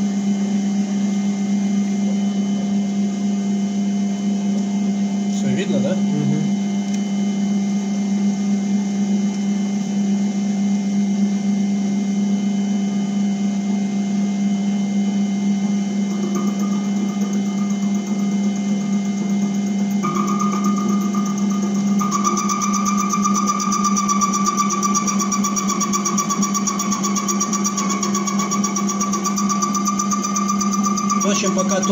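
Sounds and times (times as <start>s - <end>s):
high steady whine: 0.0s - 31.9s
lathe motor and gear hum: 15.4s - 31.9s.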